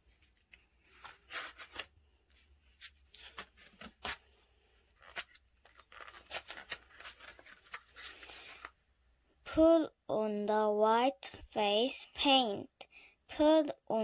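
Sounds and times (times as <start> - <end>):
book pages turning: 0.0 - 8.8.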